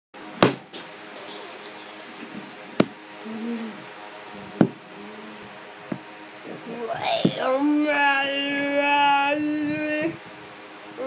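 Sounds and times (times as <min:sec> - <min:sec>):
faint steady hum: 0:00.2 - 0:11.0
knocks on hard tabletop: 0:00.4 - 0:00.7.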